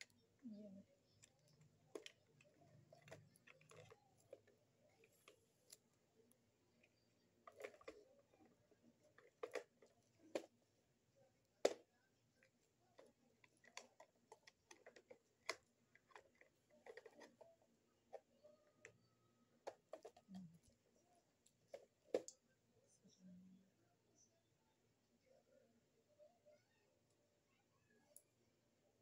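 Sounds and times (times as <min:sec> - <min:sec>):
plastic parts clicking and knocking: 0:01.0 - 0:05.9, 0:06.7 - 0:10.7, 0:11.6 - 0:20.8, 0:21.4 - 0:22.4.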